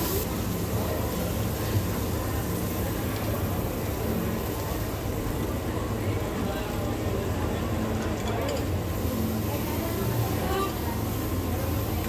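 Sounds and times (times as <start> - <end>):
beef sizzling on griddle: 0.0 - 12.0.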